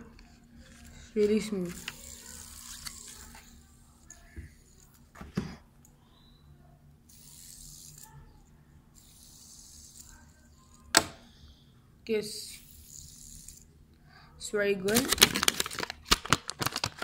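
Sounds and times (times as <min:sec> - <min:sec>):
fidget spinner whirring: 0:00.0 - 0:05.1, 0:06.6 - 0:10.9, 0:12.1 - 0:13.8.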